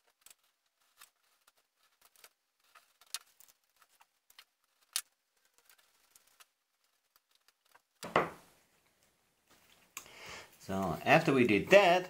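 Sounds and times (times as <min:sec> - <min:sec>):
tape being handled: 0:00.0 - 0:08.2.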